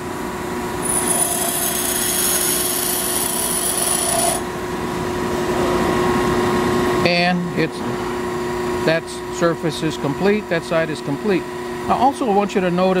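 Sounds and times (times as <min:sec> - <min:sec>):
harsh hissing grind of tool bit: 0:00.8 - 0:04.4
grinder humming: 0:00.8 - 0:04.6.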